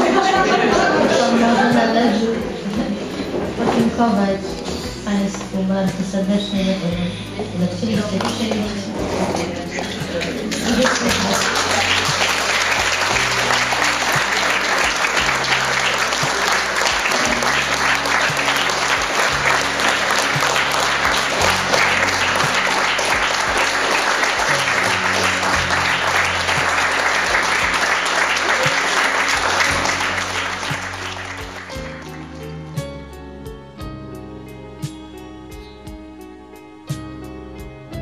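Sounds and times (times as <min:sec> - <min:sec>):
music playing: 0:00.0 - 0:38.0
audience applauding: 0:09.7 - 0:32.7.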